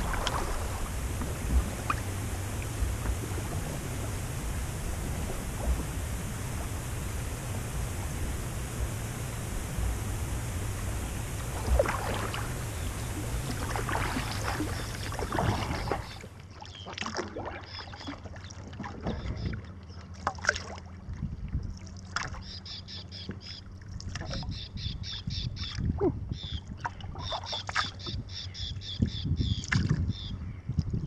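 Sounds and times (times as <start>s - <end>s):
water rushing along kayak hull: 0.0s - 21.2s
paddle splashes and drips: 0.0s - 25.9s, 26.6s - 28.4s, 29.1s - 30.3s.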